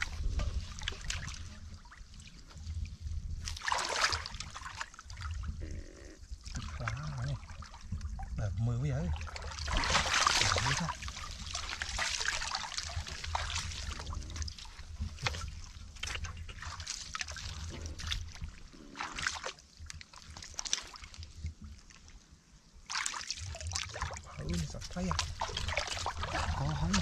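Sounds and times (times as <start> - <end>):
hands splashing in muddy water: 0.0 - 2.3, 3.4 - 5.4, 9.2 - 21.6, 22.9 - 27.0.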